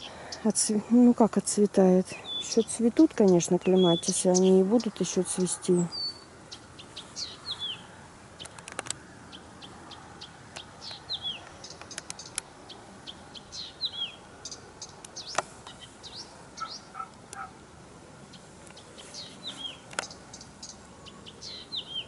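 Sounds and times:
songbirds chirping: 0.0 - 22.0
sharp clicks: 8.4 - 9.0, 10.5 - 12.5.

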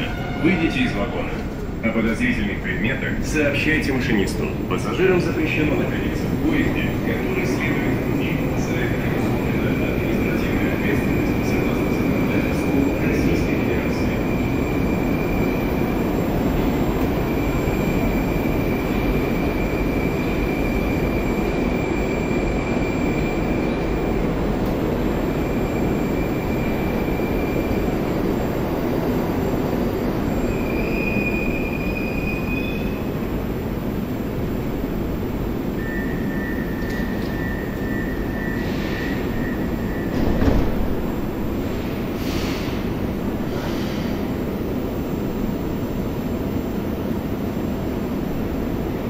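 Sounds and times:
rumble of train wheels on rail: 0.0 - 49.0
high wheel squeal: 30.2 - 33.1.

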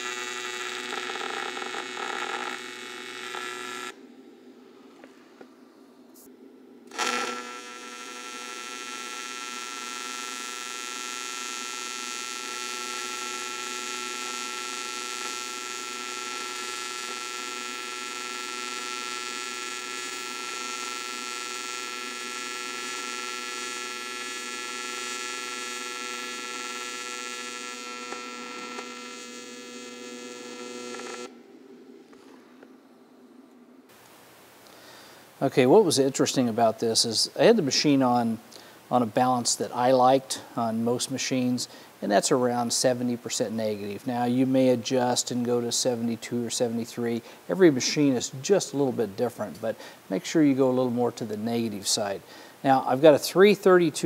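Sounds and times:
welding arc buzz and hiss: 0.0 - 4.0, 6.2 - 31.4
welding arc crackle: 0.0 - 4.0, 6.9 - 31.3.

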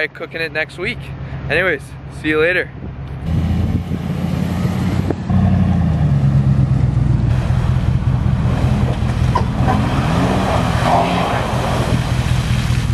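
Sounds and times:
pickup truck engine running: 4.6 - 10.6
water splashing: 7.3 - 12.9.

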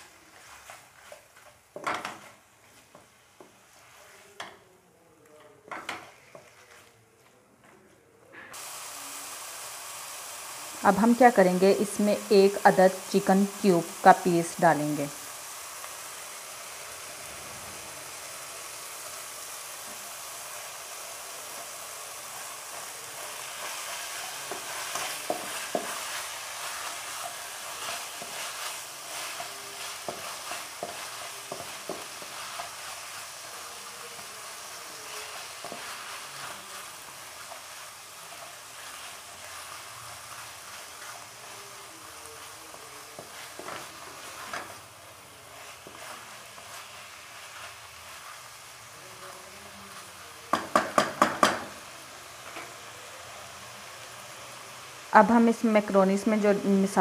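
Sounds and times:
spatula scraping a pan: 0.0 - 3.0, 23.2 - 48.5
chicken sizzling in a wok: 0.0 - 4.7, 8.5 - 57.0.

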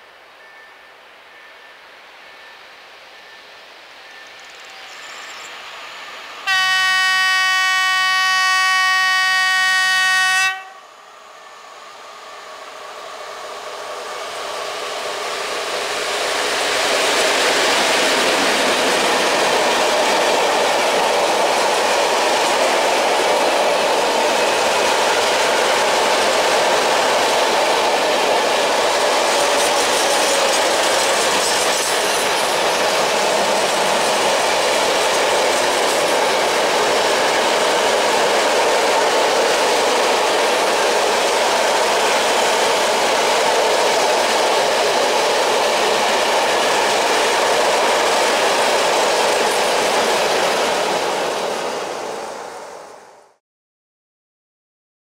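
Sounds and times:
locomotive horn blast: 6.4 - 10.9
train wheels on rails: 10.5 - 53.4.

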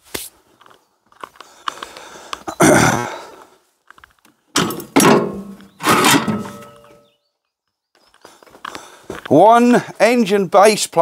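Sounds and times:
heavy metal clanks ringing: 4.6 - 7.0
metal parts clicking and knocking: 4.6 - 7.0.

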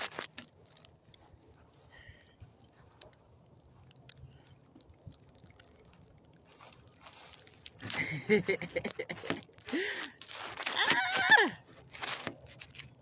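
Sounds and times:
small ticks: 0.2 - 8.0.

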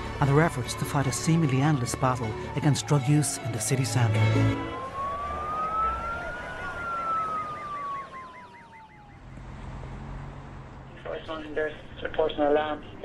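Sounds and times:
police siren wailing and yelping: 0.0 - 9.4.

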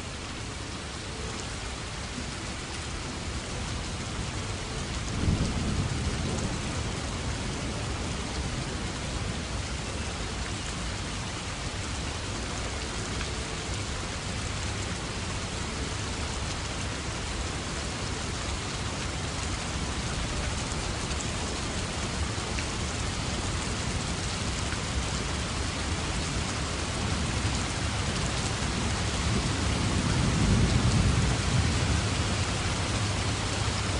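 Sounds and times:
steady rain falling: 0.0 - 33.9
low rolls of thunder: 5.1 - 8.9, 28.8 - 33.7.

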